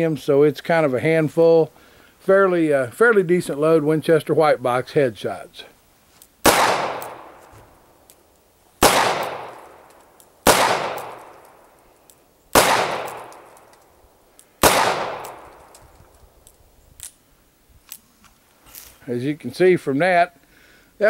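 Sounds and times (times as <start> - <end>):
revolver gunshots echoing: 6.4 - 7.5, 8.8 - 11.6, 12.5 - 13.7, 14.6 - 15.8.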